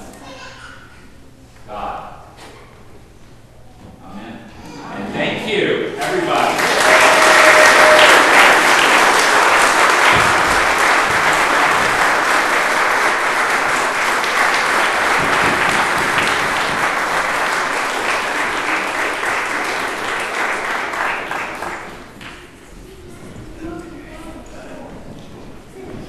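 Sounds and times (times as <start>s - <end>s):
congregation applauding: 6.0s - 22.5s.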